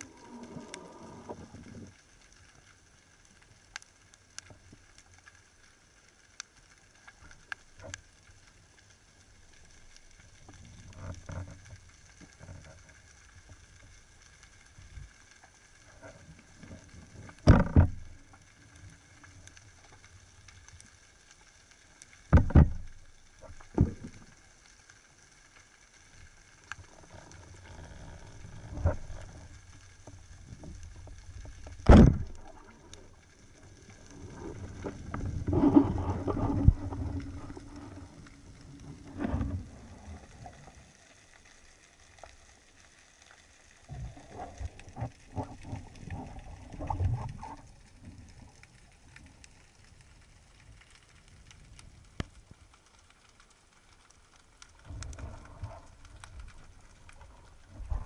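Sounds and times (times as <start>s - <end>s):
underwater scuffling and knocks: 16.0s - 18.1s, 22.2s - 24.3s, 27.1s - 29.4s, 30.1s - 33.2s, 33.8s - 40.7s, 54.8s - 58.0s.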